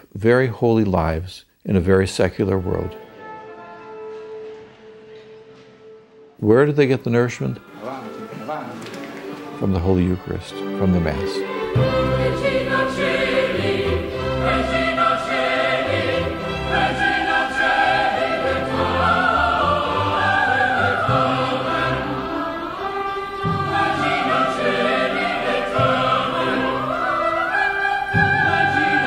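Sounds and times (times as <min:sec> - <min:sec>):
orchestra: 0:02.4 - 0:29.0
choir singing: 0:07.6 - 0:29.0.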